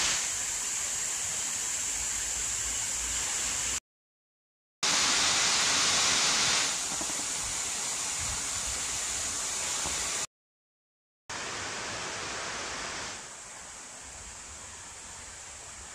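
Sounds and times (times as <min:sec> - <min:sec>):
water rushing over stone ledges: 0:04.8 - 0:10.3.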